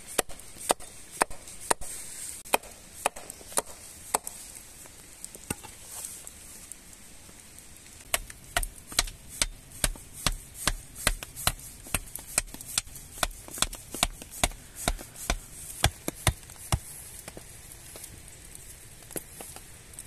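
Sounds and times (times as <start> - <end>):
hatchet knocking wooden stake: 0.1 - 1.9, 2.5 - 4.3, 8.1 - 16.9.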